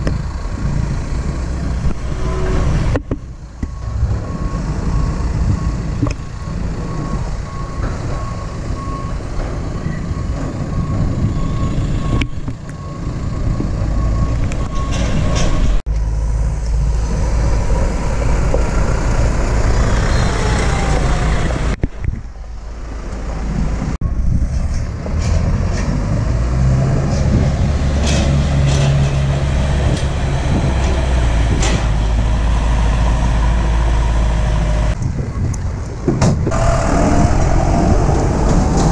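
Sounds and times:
tractor engines running: 0.0 - 38.9
reversing alarm beeping: 3.4 - 15.8.

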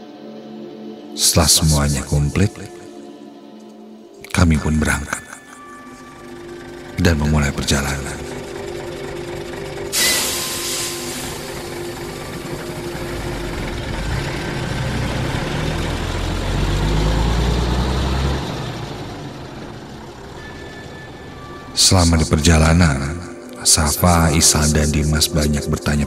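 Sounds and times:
bus engine pulling away: 4.6 - 26.0
air brakes hissing: 9.8 - 13.2.

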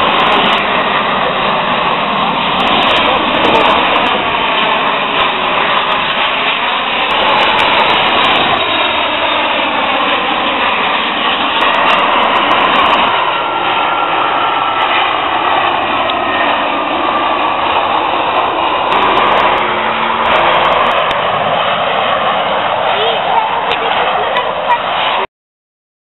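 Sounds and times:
jet engines of passing airliners: 0.0 - 25.3.

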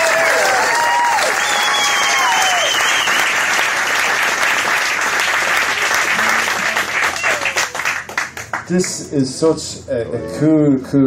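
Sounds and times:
cheering shouts: 0.0 - 3.2, 6.1 - 7.8
audience applauding: 0.0 - 9.0
whistle: 1.4 - 3.3.

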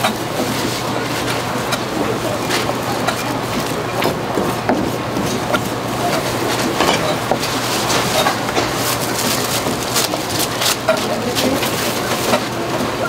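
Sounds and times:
plastic wrap crinkling: 7.4 - 12.5.

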